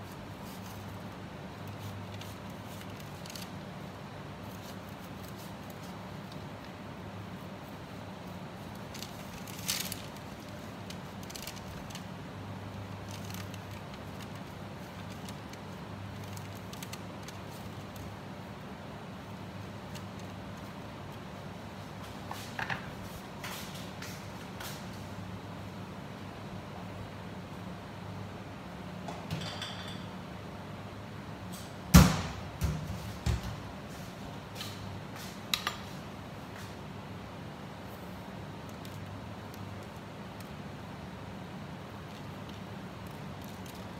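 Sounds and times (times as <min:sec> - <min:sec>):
pastry brush crackling and rustling: 0:00.0 - 0:25.0, 0:37.8 - 0:43.9
steady low hum: 0:00.0 - 0:43.9.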